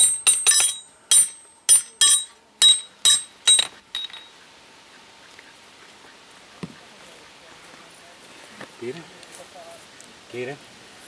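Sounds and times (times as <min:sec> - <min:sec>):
hammer striking horseshoe on anvil: 0:00.0 - 0:04.3.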